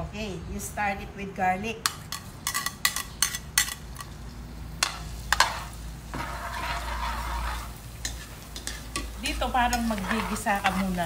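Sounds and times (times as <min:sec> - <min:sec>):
metal utensils clinking on dishes: 0:01.8 - 0:04.2
garlic sizzling in hot oil: 0:01.9 - 0:11.0.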